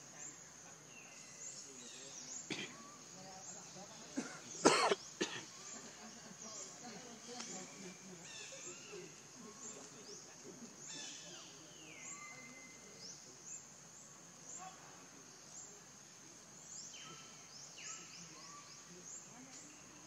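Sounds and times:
birds chirping: 0:00.0 - 0:20.0
high insect hum: 0:00.0 - 0:20.0
whistled bird notes: 0:10.8 - 0:13.6.

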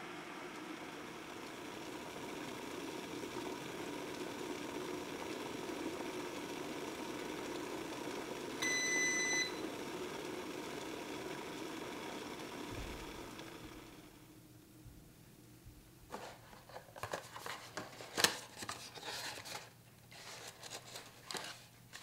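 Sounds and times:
kettle heating water hiss: 0:00.0 - 0:15.6
electronic beep: 0:08.6 - 0:09.6.

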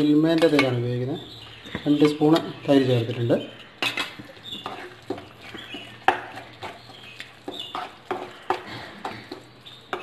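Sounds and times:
spatula scraping a pan: 0:03.5 - 0:10.0.

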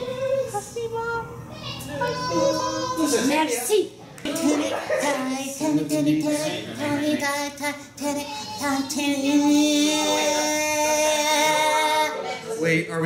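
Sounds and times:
people singing in puppet voices: 0:04.3 - 0:12.2.

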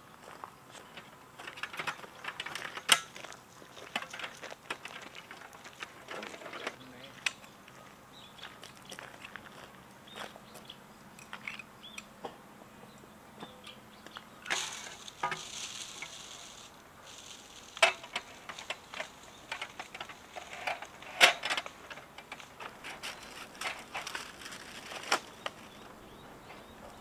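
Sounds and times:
rustling: 0:00.8 - 0:07.9, 0:14.1 - 0:27.0
clicks and knocks of hard parts: 0:01.0 - 0:03.2, 0:03.9 - 0:07.5, 0:17.8 - 0:25.6.

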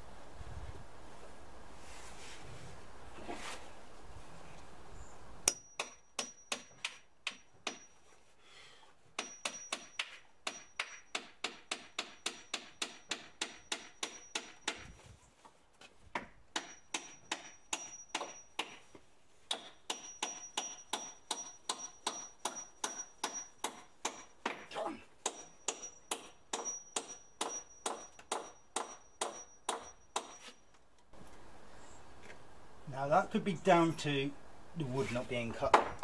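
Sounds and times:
hammer driving nails into wood: 0:05.5 - 0:07.9, 0:09.2 - 0:15.0.

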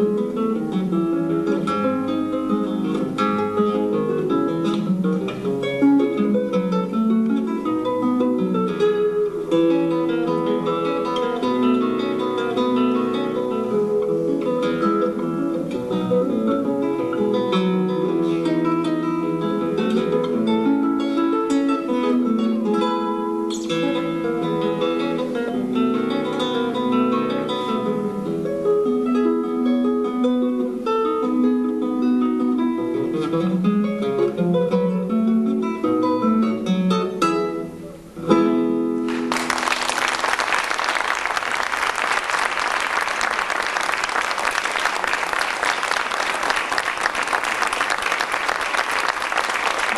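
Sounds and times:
fingerstyle classical guitar: 0:00.0 - 0:39.9.

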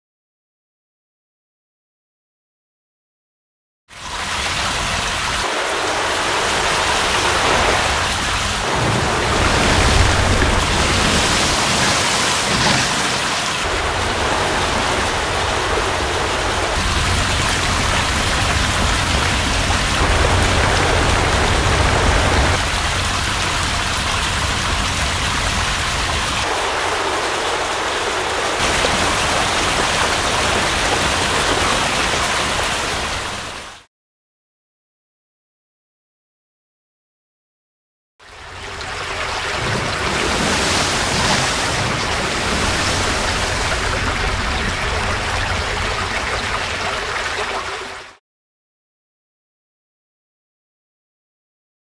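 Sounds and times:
rushing water hiss: 0:04.3 - 0:33.6, 0:39.0 - 0:46.2.

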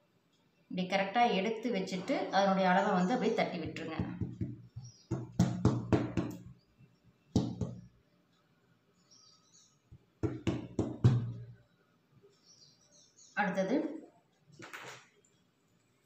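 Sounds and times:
hands patting cloth: 0:04.0 - 0:06.5, 0:07.4 - 0:07.9.

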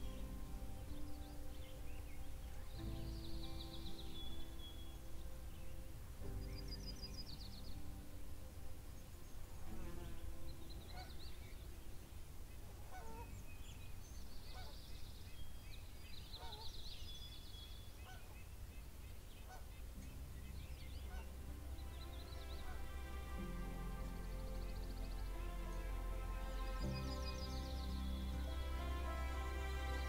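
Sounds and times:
small birds trilled chirps: 0:08.9 - 0:29.7
steady low rumble: 0:20.0 - 0:30.0.

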